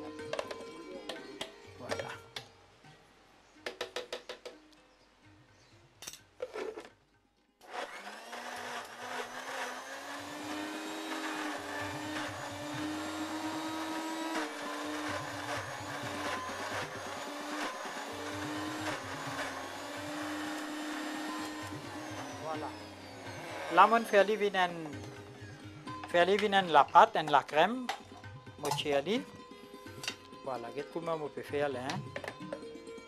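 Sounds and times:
blender motor whine: 7.6s - 25.5s.

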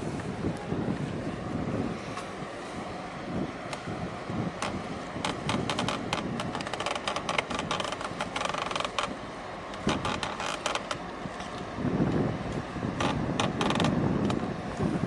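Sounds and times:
wind rumble on microphone: 0.0s - 15.0s
microphone handling clicks: 4.6s - 9.2s, 9.8s - 11.6s, 13.0s - 14.4s.

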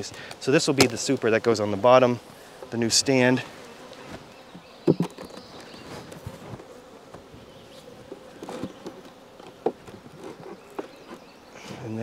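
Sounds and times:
honeybees buzzing: 0.0s - 12.0s
wooden hive knocks: 4.5s - 7.3s, 8.0s - 11.3s.

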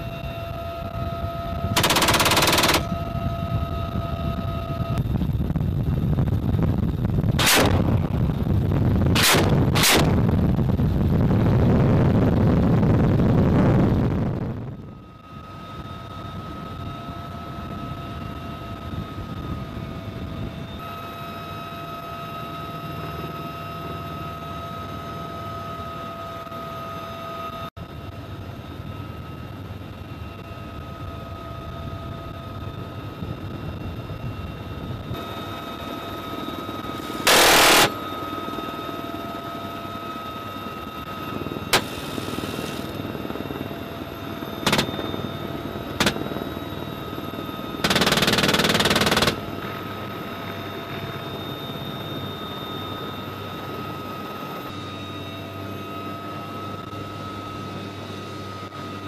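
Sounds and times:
helicopter cabin whine: 0.0s - 59.0s
minigun bursts: 1.8s - 3.0s, 7.4s - 8.0s, 37.1s - 38.0s, 44.6s - 45.3s, 47.8s - 49.4s.

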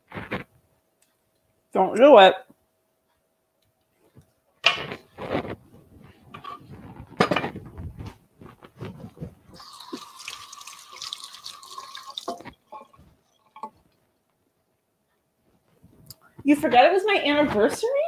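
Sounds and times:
knocks and clatters: 6.3s - 9.5s
kitchen tap running: 9.5s - 13.7s.

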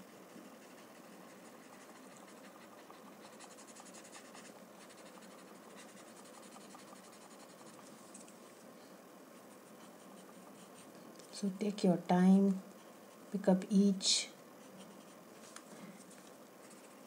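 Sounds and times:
shading tool scratching paper: 0.0s - 8.0s, 9.4s - 10.9s.

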